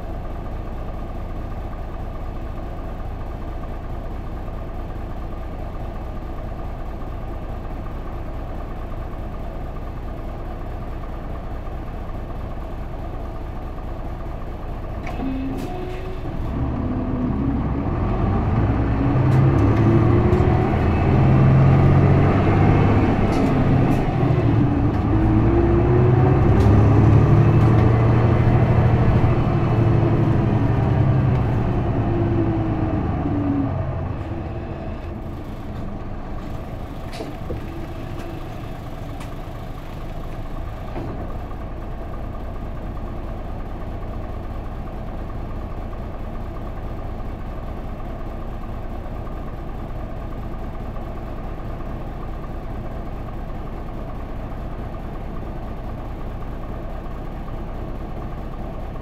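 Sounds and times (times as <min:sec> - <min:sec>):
bus diesel engine: 0:00.0 - 0:59.0.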